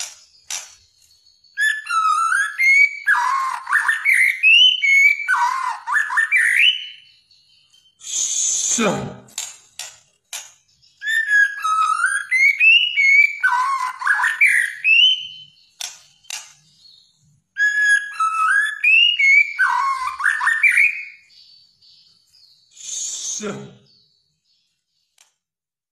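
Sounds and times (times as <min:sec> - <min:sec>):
sharp bird clicks: 0:00.0 - 0:01.2, 0:09.3 - 0:10.8, 0:15.6 - 0:16.7, 0:25.1 - 0:25.5
bird singing whistled phrases: 0:01.2 - 0:08.9, 0:10.8 - 0:24.2.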